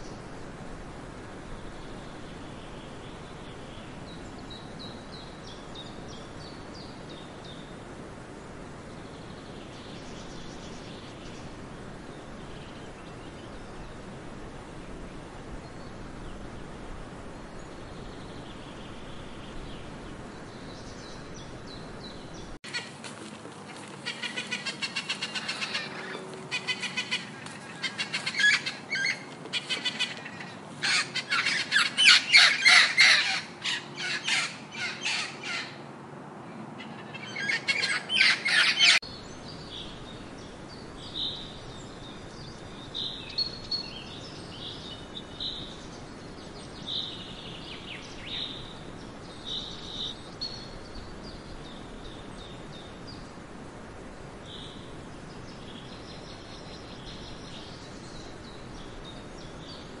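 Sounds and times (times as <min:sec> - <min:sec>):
outdoor background noise: 0:00.0 - 1:00.0
small birds chirping: 0:14.8 - 0:35.8
macaws squawking: 0:23.7 - 0:35.8, 0:36.9 - 0:39.0.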